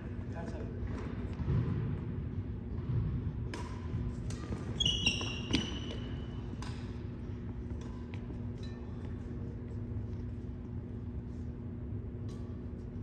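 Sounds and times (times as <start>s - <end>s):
steady low hum: 0.0s - 13.0s
racket hitting shuttlecock: 2.7s - 9.8s, 12.2s - 12.9s
sneakers squeaking on hardwood: 4.4s - 6.5s.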